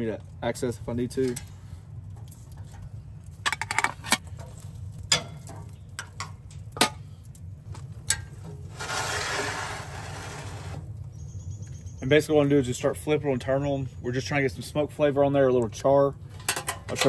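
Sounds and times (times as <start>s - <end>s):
scraping noise: 8.7s - 10.8s.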